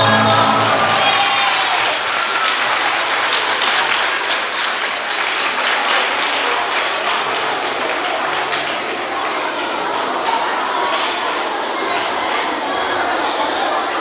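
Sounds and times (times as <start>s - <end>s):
music: 0.0s - 1.3s
audience applauding: 0.0s - 11.4s.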